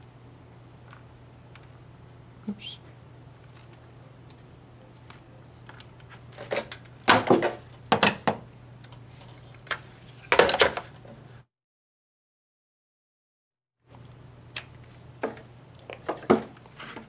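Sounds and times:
steady low hum: 0.0 - 11.5
power plug and cable clattering: 3.5 - 11.0.

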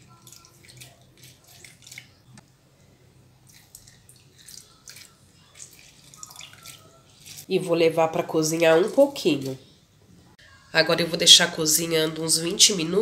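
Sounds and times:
juice dripping into water: 0.0 - 2.5, 3.4 - 7.5.

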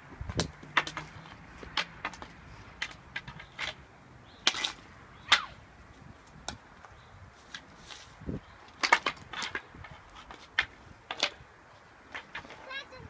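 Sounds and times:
hockey sticks clacking on asphalt: 0.1 - 13.0.

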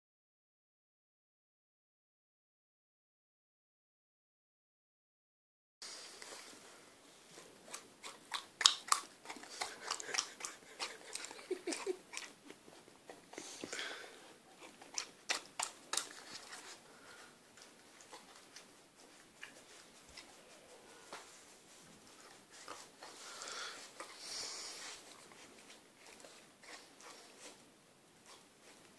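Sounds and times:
puppy chewing and smacking: 7.6 - 13.7, 14.3 - 16.8, 22.2 - 23.2.

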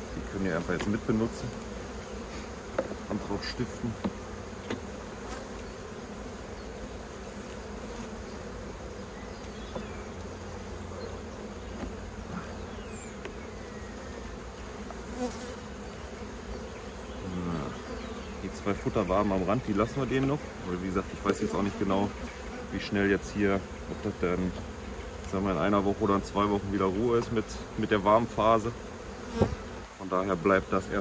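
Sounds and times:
honeybees buzzing: 0.0 - 31.0.

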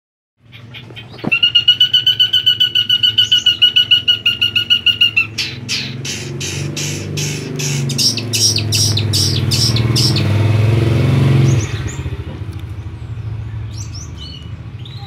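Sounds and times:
harsh scratchy bird chattering: 0.4 - 10.4
bird calling rapid notes: 0.4 - 10.6.

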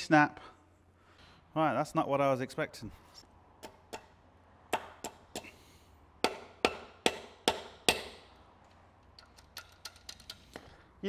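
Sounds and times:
hammer striking metal: 6.2 - 8.4.

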